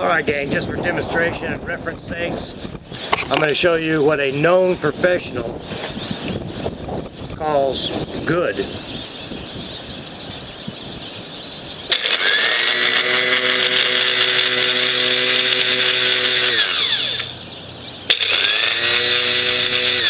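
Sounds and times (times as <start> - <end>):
starter motor whining: 11.9 - 17.4, 18.1 - 20.0.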